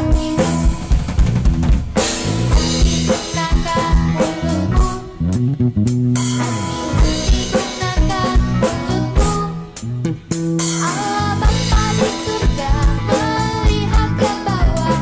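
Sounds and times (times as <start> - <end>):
child singing: 0.0 - 0.8, 2.6 - 5.2, 7.1 - 9.8, 10.8 - 15.0
upbeat children's song: 0.0 - 0.9, 2.2 - 5.4, 6.4 - 9.9, 10.7 - 15.0
bass and guitar: 0.0 - 15.0
drum kit beat: 0.0 - 15.0.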